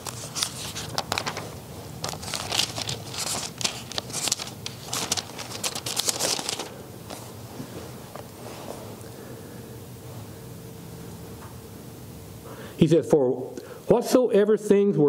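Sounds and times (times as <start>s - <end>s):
thin pages rustling: 0.0s - 8.9s.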